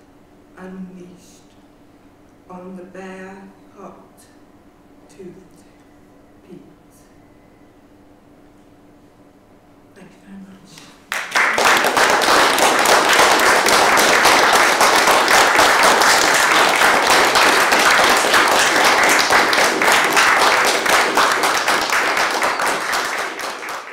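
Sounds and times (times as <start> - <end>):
audience applauding: 11.1 - 23.9.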